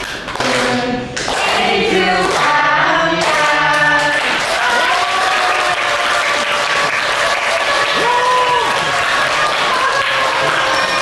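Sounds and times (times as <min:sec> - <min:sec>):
clapping: 0:00.0 - 0:01.5, 0:04.1 - 0:11.0
group of people singing: 0:00.3 - 0:05.3.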